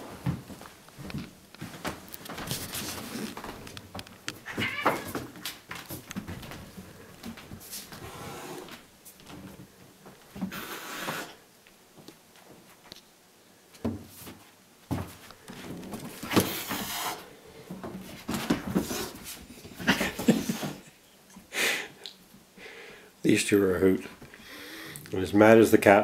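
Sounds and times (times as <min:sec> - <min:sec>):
cat hissing and growling: 0:08.0 - 0:08.8, 0:10.5 - 0:11.4
scuffle thumps: 0:17.7 - 0:20.8.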